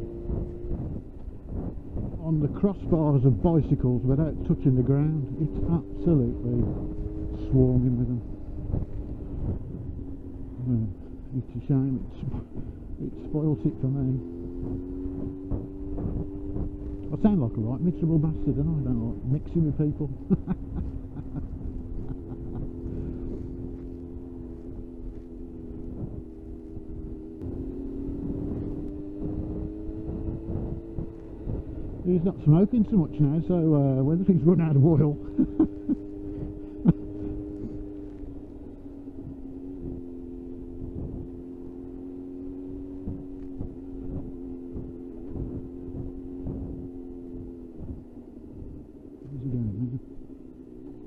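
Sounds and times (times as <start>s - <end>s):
wind on microphone: 0.0s - 2.6s, 6.4s - 11.2s, 14.2s - 17.2s, 20.0s - 33.0s, 35.1s - 41.5s, 42.8s - 50.1s
motorcycle engine cruising: 0.0s - 51.0s
road rumble: 0.0s - 51.0s.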